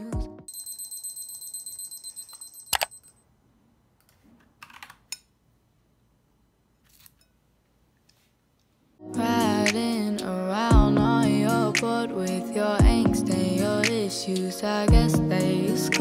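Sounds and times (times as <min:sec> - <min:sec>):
timer alarm beeping: 0:00.5 - 0:03.2.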